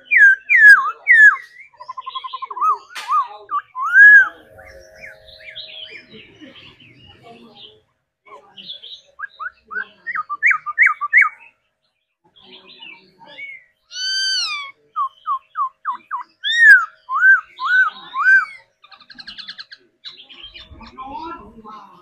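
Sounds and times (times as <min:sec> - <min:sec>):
bird singing whistled notes: 0:00.0 - 0:06.8.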